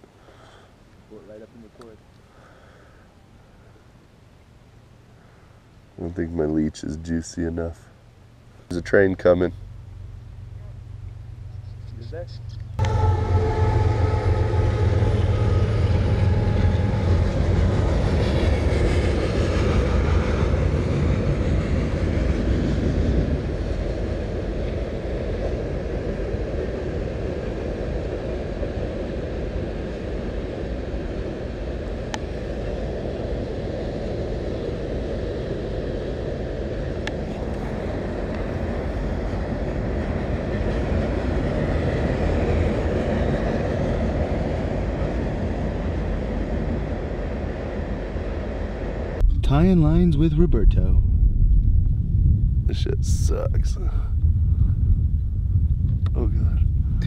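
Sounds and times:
train rumbling past: 0:08.7 - 0:57.0
train horn chord: 0:12.8 - 0:17.8.

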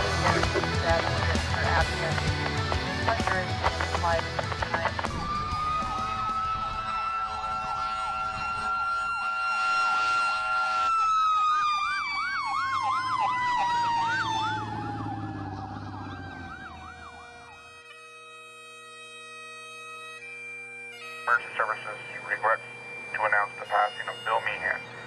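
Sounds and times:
steady high siren: 0:04.8 - 0:18.3, 0:21.3 - 0:25.0
sweeping siren: 0:05.0 - 0:17.9.

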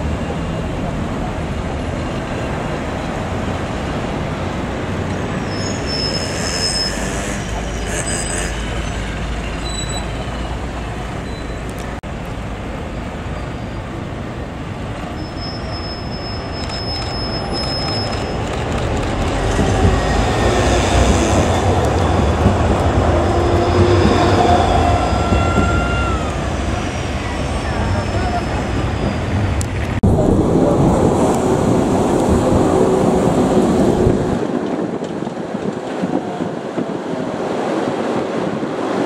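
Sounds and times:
tram passing: 0:00.0 - 0:39.0.

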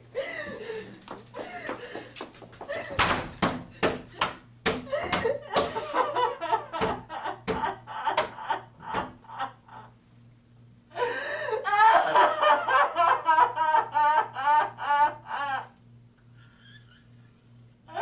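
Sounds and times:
hands pounding on wooden door: 0:02.8 - 0:05.8, 0:06.8 - 0:09.2.

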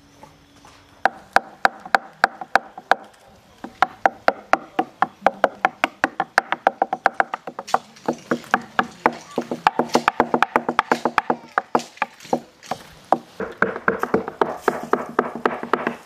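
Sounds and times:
sticks beating hollow log: 0:01.0 - 0:16.0.

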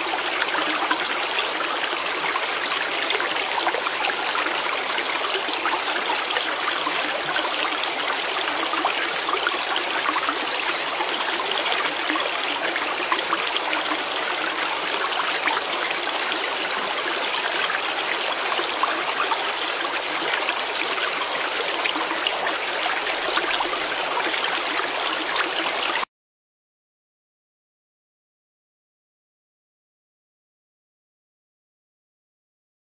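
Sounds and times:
water running and trickling: 0:00.0 - 0:26.1.

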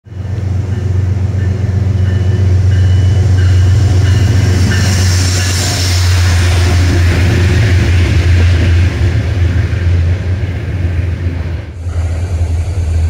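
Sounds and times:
locomotive drone: 0:00.0 - 0:13.0.

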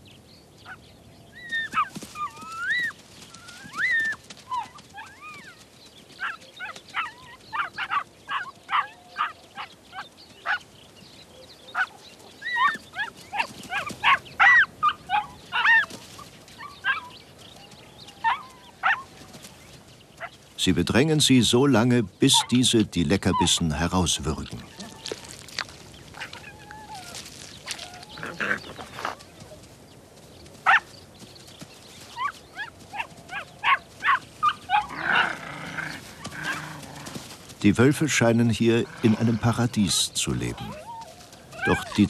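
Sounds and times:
wolves whining and yelping: 0:01.4 - 0:05.6, 0:06.2 - 0:10.6, 0:11.6 - 0:19.4, 0:26.1 - 0:29.6, 0:30.6 - 0:30.9, 0:32.1 - 0:37.4, 0:40.5 - 0:42.0.

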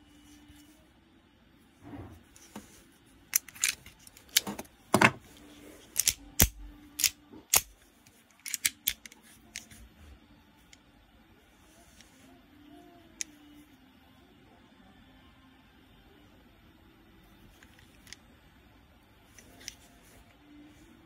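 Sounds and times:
pistol parts clicking: 0:03.3 - 0:05.1, 0:05.9 - 0:09.8.

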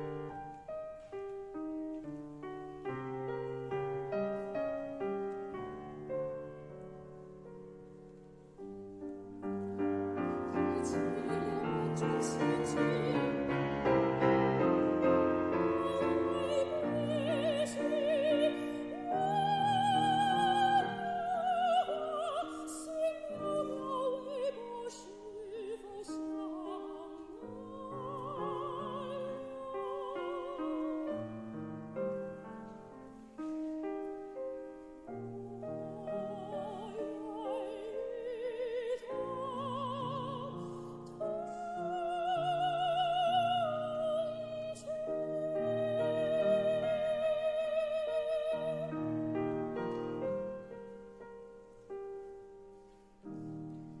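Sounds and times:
grand piano: 0:00.0 - 0:54.0
soprano singing with vibrato: 0:09.8 - 0:32.9, 0:33.5 - 0:51.0.

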